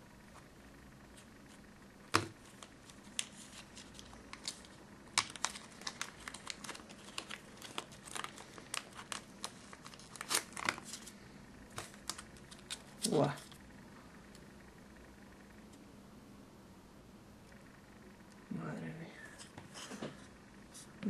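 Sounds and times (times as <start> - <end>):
plastic packaging crinkling: 2.2 - 13.6.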